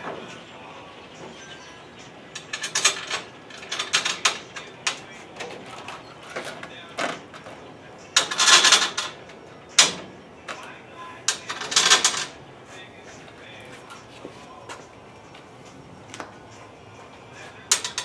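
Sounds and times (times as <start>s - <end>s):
hardware rattling clatter: 2.3s - 12.4s, 16.5s - 18.0s
steel hardware clicking and clinking: 2.3s - 12.4s, 13.1s - 18.0s.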